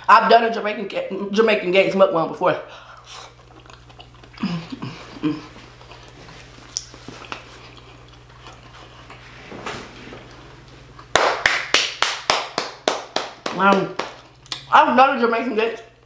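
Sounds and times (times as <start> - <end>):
faint steady hum: 0.0 - 16.0
mouth and eating sounds: 3.0 - 9.2
quick hand claps: 11.1 - 14.2.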